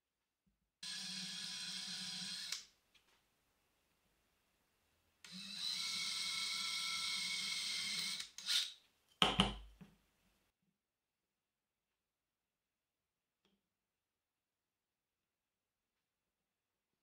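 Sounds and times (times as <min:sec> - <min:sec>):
cordless drill boring wood: 0:00.8 - 0:02.7, 0:05.3 - 0:08.8.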